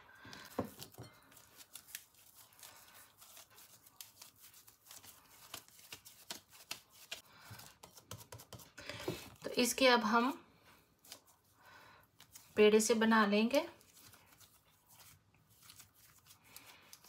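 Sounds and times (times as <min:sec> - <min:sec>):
hands kneading dough: 0:00.0 - 0:17.0.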